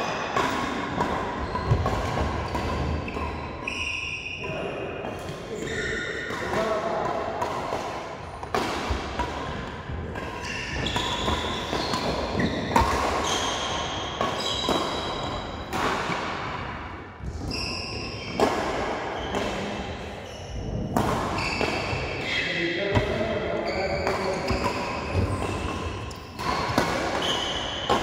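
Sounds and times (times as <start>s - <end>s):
shoes squeaking on court floor: 0.3s - 4.5s, 5.1s - 6.6s, 10.0s - 16.6s, 17.3s - 28.0s
rackets striking shuttlecock: 6.3s - 17.5s, 24.0s - 28.0s.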